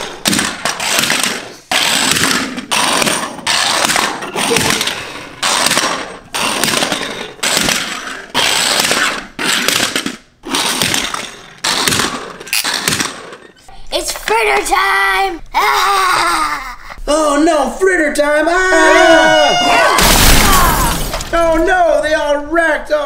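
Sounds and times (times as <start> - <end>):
toy cars crashing on wooden floor: 0.0 - 13.5, 20.0 - 21.7.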